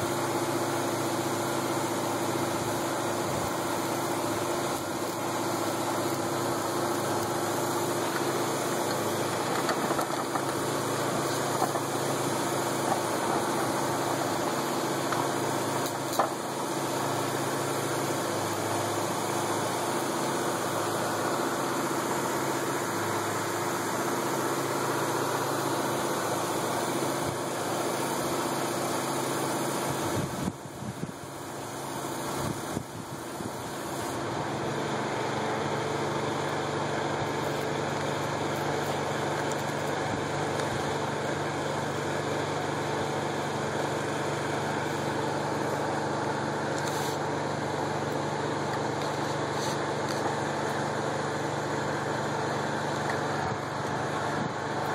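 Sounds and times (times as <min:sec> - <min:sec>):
motor humming: 0:02.1 - 0:54.9.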